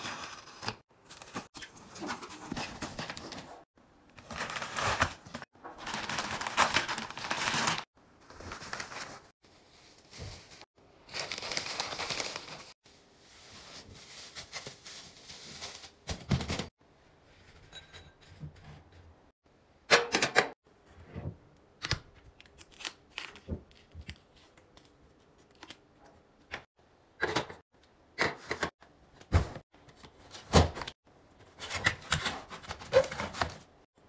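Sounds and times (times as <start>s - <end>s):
plastic wrapping crinkling: 5.8s - 12.7s.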